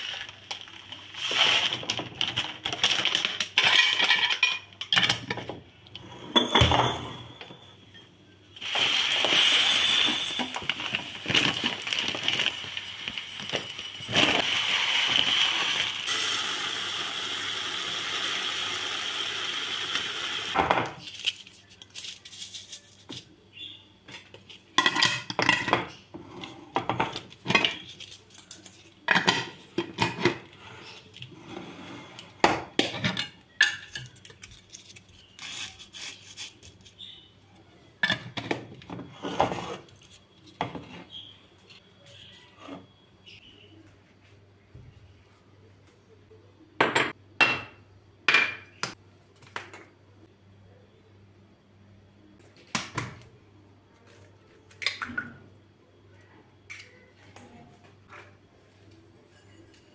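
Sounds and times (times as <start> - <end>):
plastic bag rustling: 10.4 - 14.5.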